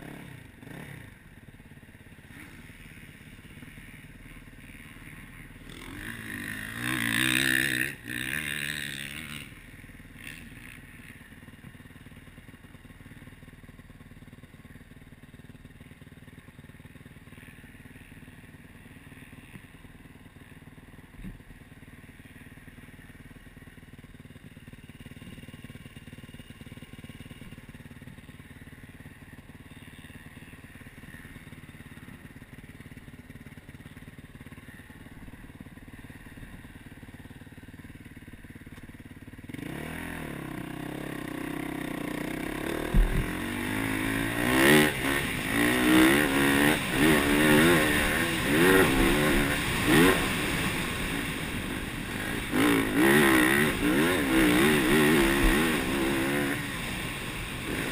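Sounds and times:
dirt bike engine revving: 0:00.0 - 0:01.4, 0:02.1 - 0:11.3, 0:39.4 - 0:57.9.

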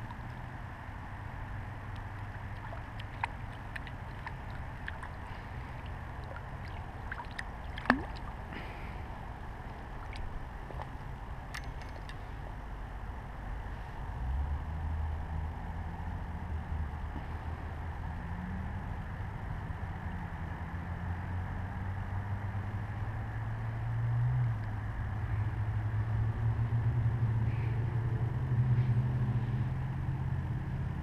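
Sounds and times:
faint water splashing: 0:01.8 - 0:12.1.

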